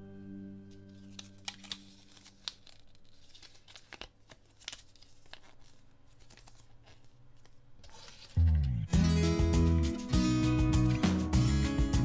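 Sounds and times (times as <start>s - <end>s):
paper rustling and crinkling: 0.7s - 8.7s
paper crackles: 0.7s - 8.8s.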